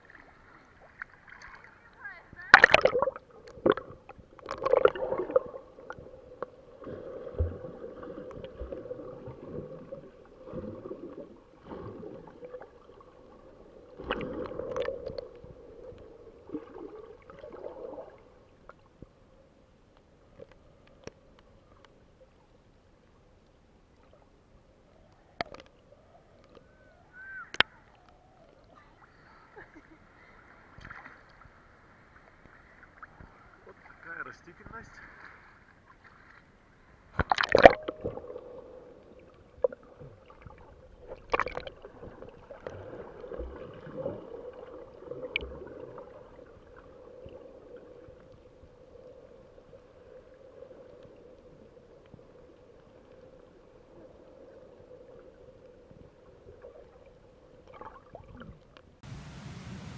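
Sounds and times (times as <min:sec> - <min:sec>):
muffled underwater sloshing: 0:00.0 - 0:59.9
surface water hiss: 0:59.0 - 0:59.9.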